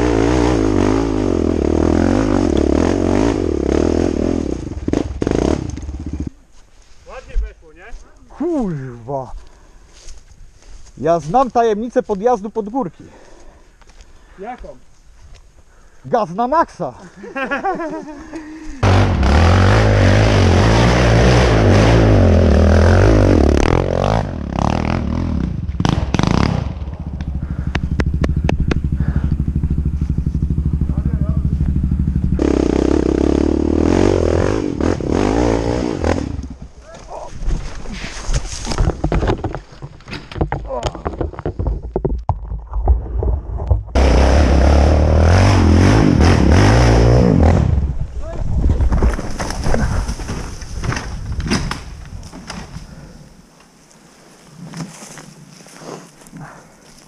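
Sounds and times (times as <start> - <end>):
quad bike engine at full throttle: 0.0 - 6.4, 18.8 - 36.6, 44.0 - 47.9
engine pulsing beat: 27.0 - 33.9
knocks and rattles: 38.6 - 44.0.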